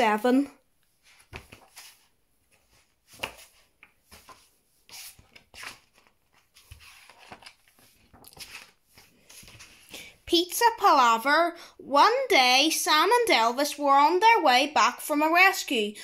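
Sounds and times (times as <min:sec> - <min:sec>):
paper pages turning: 0:01.0 - 0:10.1.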